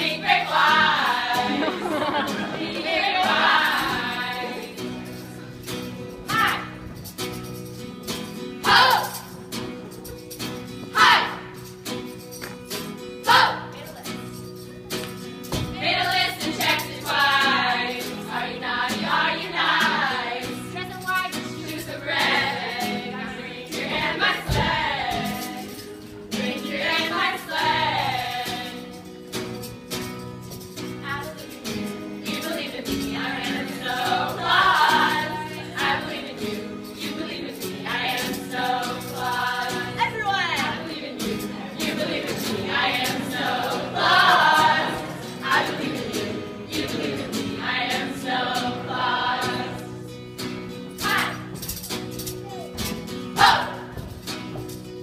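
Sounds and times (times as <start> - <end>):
women singing together: 0.0 - 5.2, 8.6 - 9.3, 10.9 - 11.4, 13.2 - 13.7, 15.6 - 29.1, 32.2 - 50.1, 51.0 - 51.6, 53.3 - 54.1
strummed acoustic guitar: 0.0 - 55.0.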